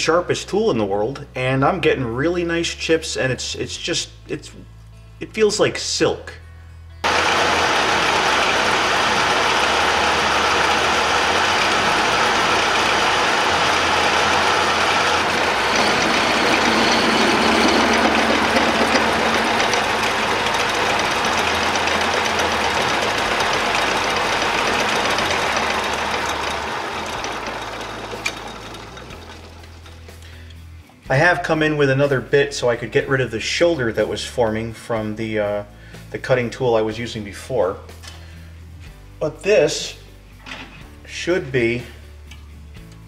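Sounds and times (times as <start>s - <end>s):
metal lathe machining: 7.0s - 29.9s
lathe spinning down: 7.0s - 30.2s.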